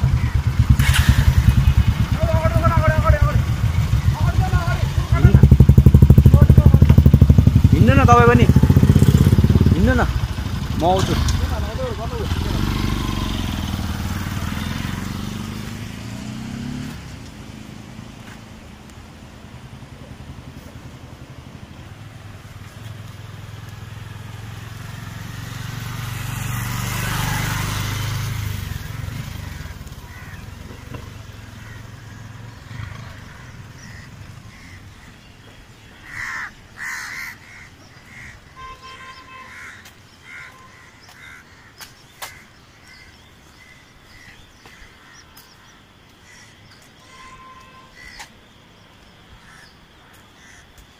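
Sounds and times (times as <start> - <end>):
motorcycle passing: 0.0 - 46.4
crow cawing: 28.8 - 30.9, 31.5 - 35.2, 35.9 - 47.1, 47.8 - 48.3, 49.4 - 50.8.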